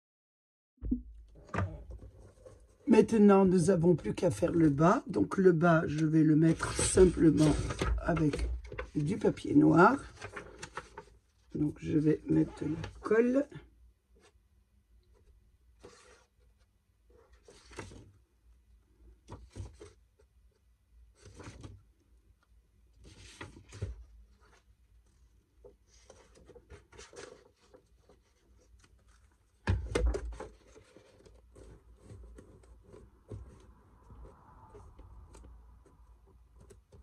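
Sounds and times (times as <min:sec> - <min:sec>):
paper rustling: 0:05.8 - 0:13.1, 0:15.8 - 0:18.2, 0:21.1 - 0:21.8, 0:23.0 - 0:37.0.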